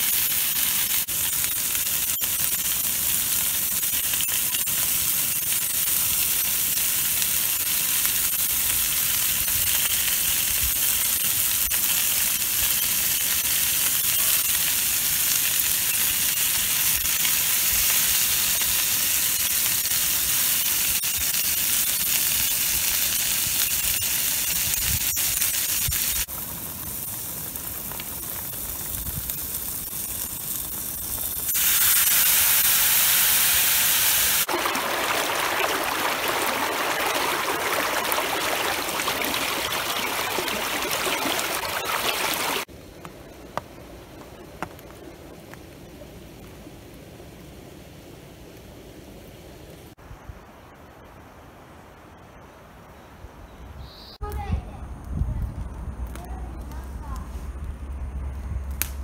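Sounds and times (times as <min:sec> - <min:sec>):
chicken sizzling in a skillet: 0:00.0 - 0:42.7.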